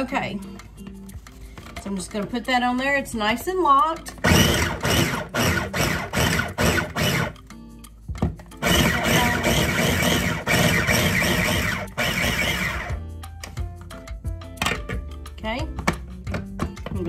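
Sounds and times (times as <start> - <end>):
background music: 0.0 - 17.0
electric food chopper whirring: 4.2 - 7.4, 8.6 - 13.0.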